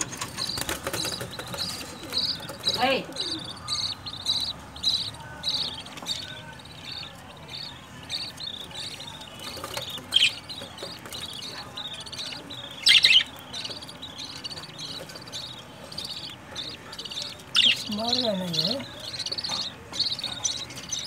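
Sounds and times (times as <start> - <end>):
budgerigars chirping: 0.0 - 21.0.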